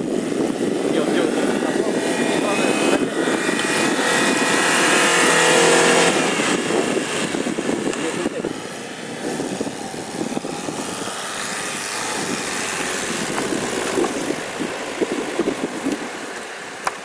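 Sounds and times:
car engine under load: 0.0 - 17.0
wheels churning through snow: 0.0 - 17.0.

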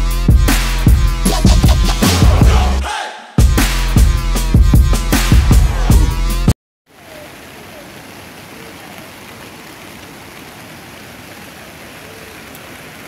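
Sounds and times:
river water flowing over rocks: 6.9 - 13.0.

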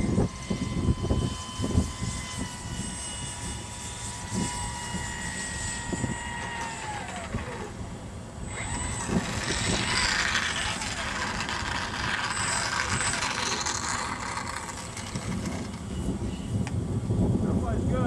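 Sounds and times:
electric motor and propeller whining: 0.0 - 18.0
low rumbling gusts: 3.5 - 18.0.

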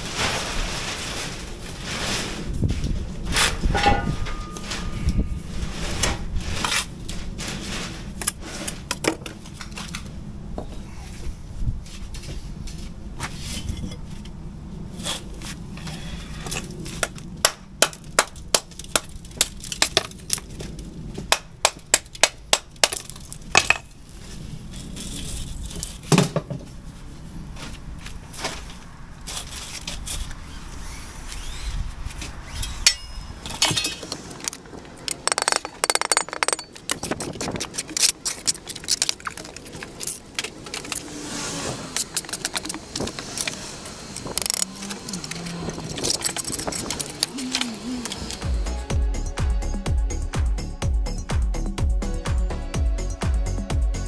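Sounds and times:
trowel tapping on bricks: 35.1 - 38.4.

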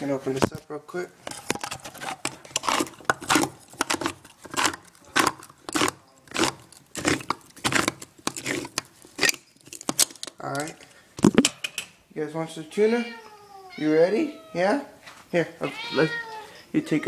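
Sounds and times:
can opener crunching: 1.2 - 11.4.

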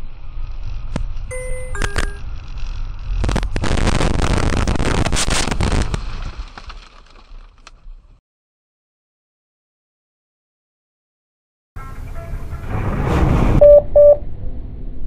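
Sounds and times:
road noise inside car: 0.0 - 3.9
short electronic beeps: 1.3 - 2.2, 13.6 - 14.2
car crash impact and crunching: 5.0 - 8.1.

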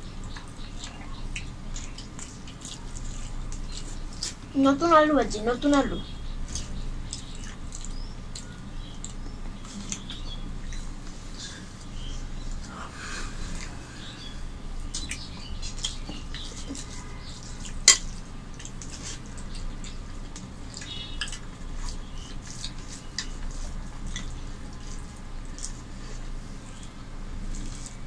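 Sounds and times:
fingers mixing rice on plates: 0.0 - 4.5, 14.8 - 28.0
wet chewing smacks: 0.2 - 4.4, 6.5 - 12.8, 14.8 - 28.0.

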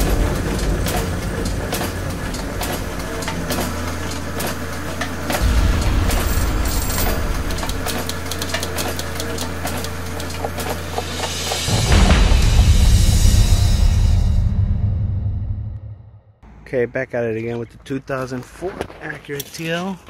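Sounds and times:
rapid clicks and clanks: 0.0 - 13.5
low engine-like hum: 0.0 - 14.6.

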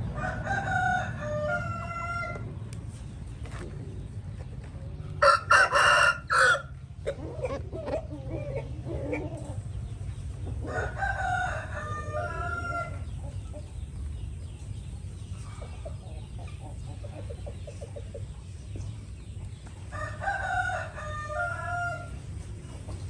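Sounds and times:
rooster crowing: 0.2 - 2.4, 5.2 - 6.8, 10.7 - 13.0, 19.9 - 22.2.

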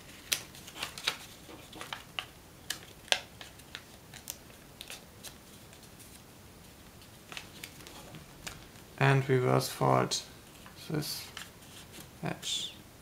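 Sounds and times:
paper crackling while folded: 0.0 - 6.2, 7.0 - 8.8.

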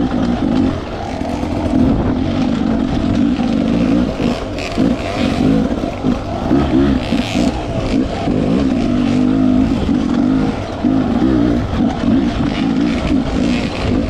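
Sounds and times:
dirt bike engine revving: 0.0 - 14.0.

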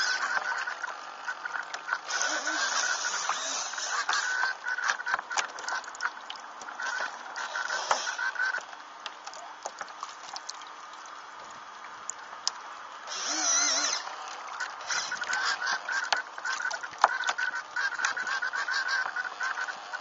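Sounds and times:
fluttering pulsing whine: 0.0 - 8.7, 13.1 - 20.0.

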